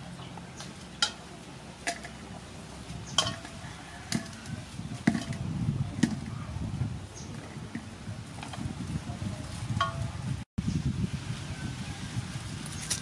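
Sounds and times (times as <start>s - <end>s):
items knocking on steel bowl: 5.0s - 6.3s.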